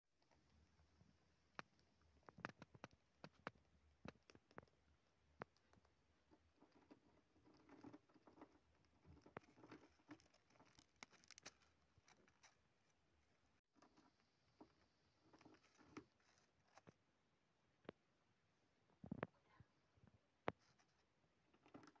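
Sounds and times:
mouse scratching and rustling: 1.6s - 13.1s, 13.8s - 17.0s.

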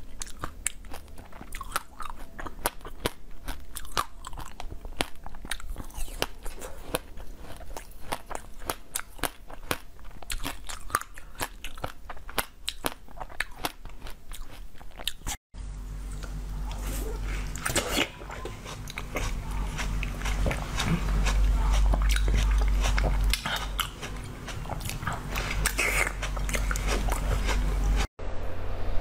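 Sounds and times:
low hum: 15.6s - 29.0s.

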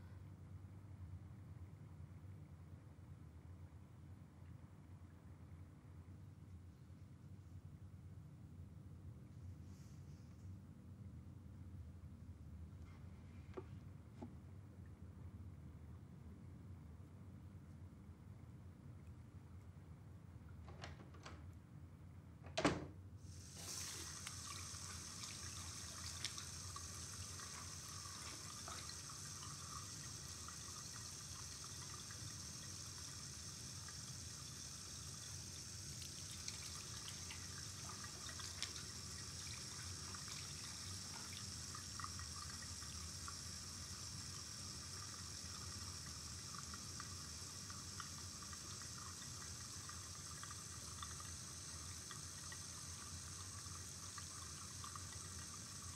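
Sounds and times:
water running from tap: 23.3s - 55.9s.

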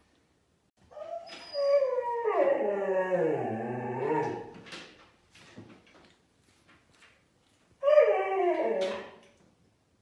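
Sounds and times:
dog howling: 1.0s - 4.5s, 7.8s - 9.2s.

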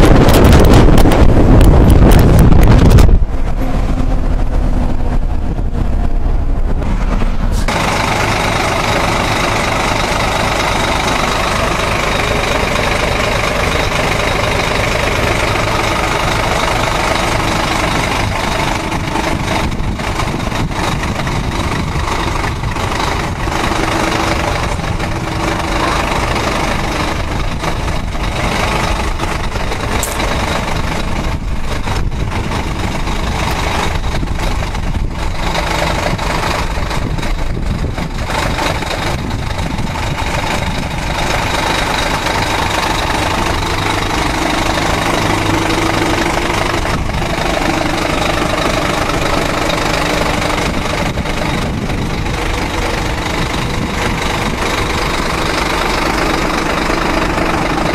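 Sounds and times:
pickup engine rumble: 0.0s - 57.9s.

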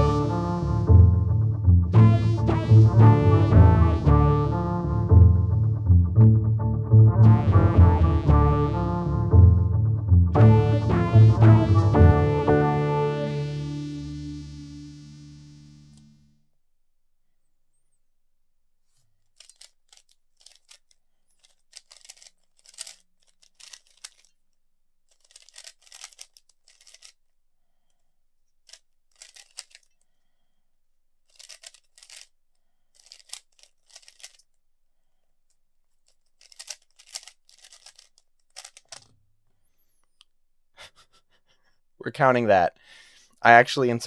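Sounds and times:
puzzle cube clicking turns: 19.2s - 27.3s, 27.9s - 30.2s, 31.2s - 34.6s, 35.4s - 39.2s.

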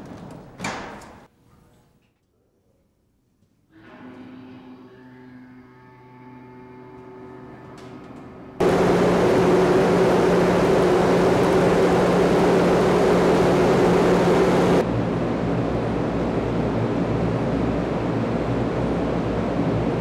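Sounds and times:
low hum: 8.6s - 20.0s
wind tunnel air rush: 8.6s - 20.0s.

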